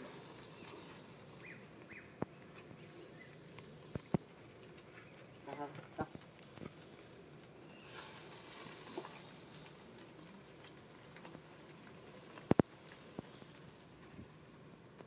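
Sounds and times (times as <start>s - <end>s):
soft rustles: 6.2s - 14.4s.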